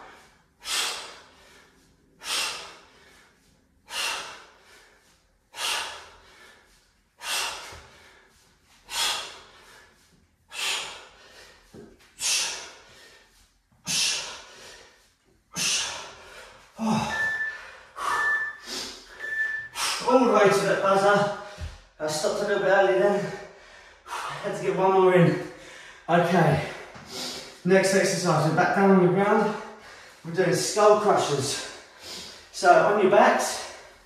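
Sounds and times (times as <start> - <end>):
interval timer beeping: 17.1 - 18.6.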